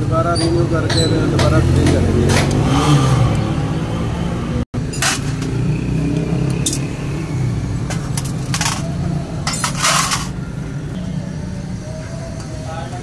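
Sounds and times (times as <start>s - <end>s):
engine rumbling in background: 0.0s - 13.0s
metal parts clinking on steel pan: 4.9s - 5.5s, 7.9s - 10.4s.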